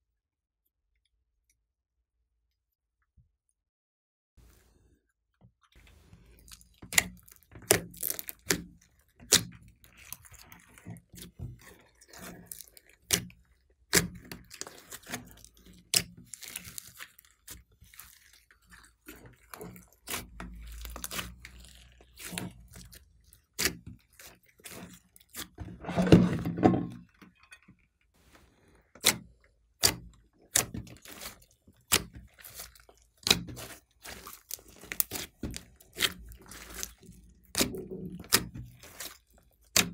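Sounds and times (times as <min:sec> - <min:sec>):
slime squelching: 0:05.8 - 0:27.5, 0:28.1 - 0:39.9
slime popping and clicking: 0:29.8 - 0:36.9.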